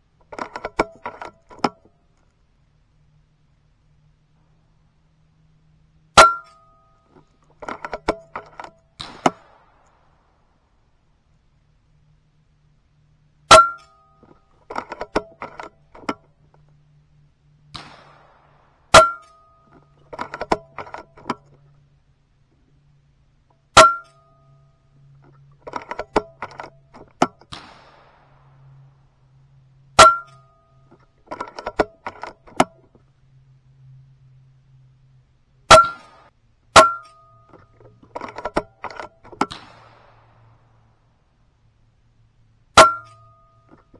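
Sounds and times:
faint low hum: 0.0 - 43.9
air rifle shots: 8.6 - 10.4, 17.7 - 19.5, 26.6 - 28.9, 35.7 - 37.1, 38.4 - 41.0.

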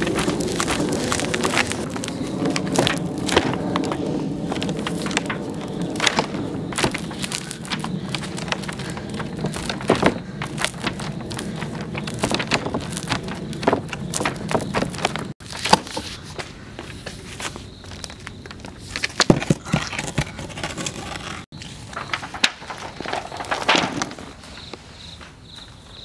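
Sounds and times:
stone cracking and knocking on wood: 4.8 - 16.0, 19.0 - 21.4.

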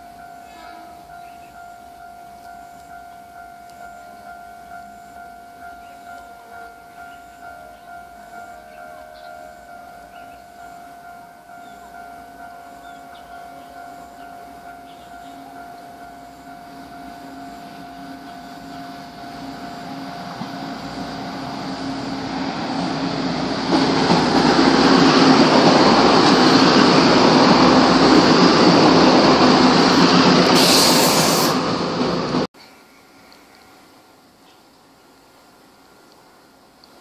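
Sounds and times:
diesel train passing: 0.0 - 32.5
brief high hiss: 30.5 - 31.7.

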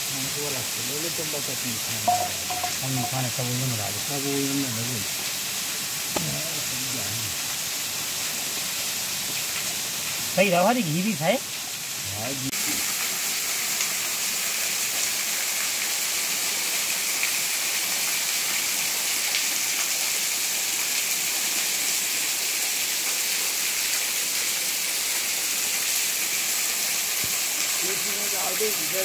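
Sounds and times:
waterfall rushing: 0.0 - 8.4, 22.0 - 29.0.

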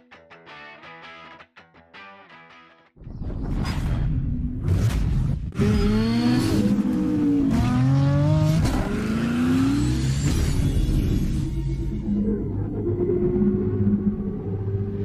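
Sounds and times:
engine revving and accelerating: 5.6 - 11.6.

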